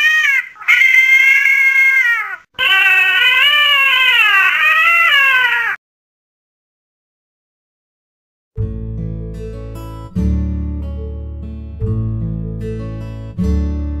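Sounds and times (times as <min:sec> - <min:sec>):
cat meowing: 0:00.0 - 0:05.8.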